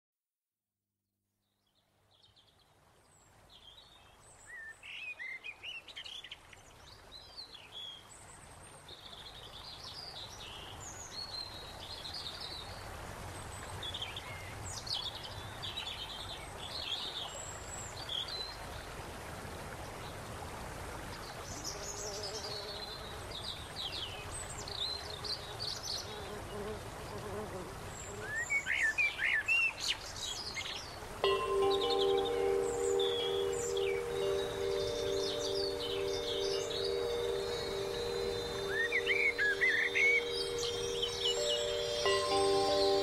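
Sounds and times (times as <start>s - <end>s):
steady background hiss: 7.8s - 43.0s
birds chirping and trilling: 31.2s - 43.0s.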